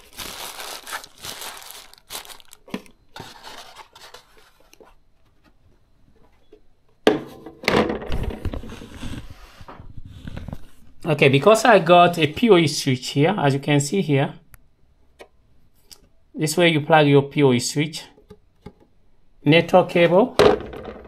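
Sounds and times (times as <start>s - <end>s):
plastic wrap crinkling: 0.0s - 4.8s.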